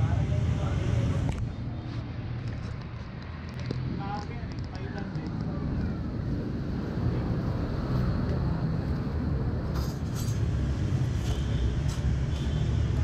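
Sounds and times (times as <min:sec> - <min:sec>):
motor traffic rumble: 0:00.0 - 0:13.0.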